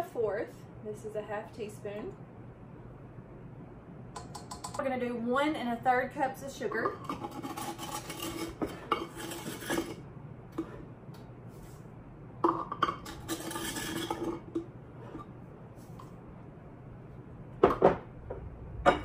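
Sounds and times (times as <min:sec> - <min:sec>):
cup scraping sugar in crock: 0:07.0 - 0:10.0, 0:13.2 - 0:15.3.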